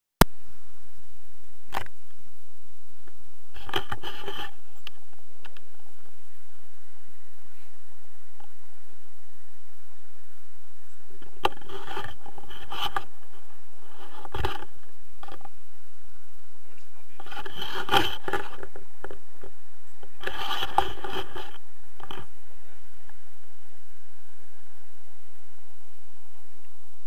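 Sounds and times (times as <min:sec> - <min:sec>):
straps rubbing against camera: 0:03.5 - 0:05.7, 0:11.2 - 0:15.5, 0:16.8 - 0:22.4.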